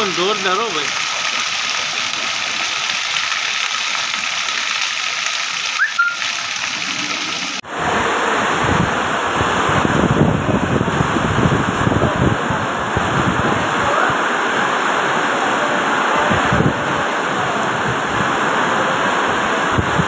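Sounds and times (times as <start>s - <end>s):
water running off a roof: 0.0s - 14.5s
heavy rain on paving: 0.0s - 20.0s
wind-driven downpour: 0.0s - 20.0s
short whistle: 5.8s - 6.2s.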